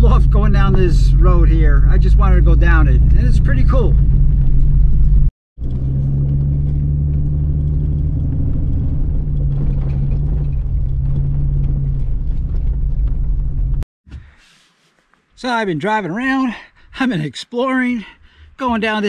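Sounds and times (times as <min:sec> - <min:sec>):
car engine and road rumble: 0:00.0 - 0:13.9.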